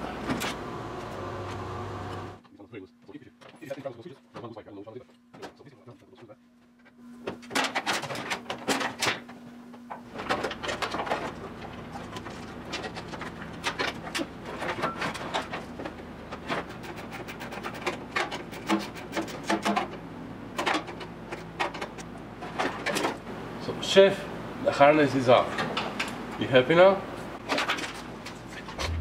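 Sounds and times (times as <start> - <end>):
wires rustling and clattering: 10.0 - 20.0, 27.4 - 29.0
low steady hum: 28.7 - 29.0.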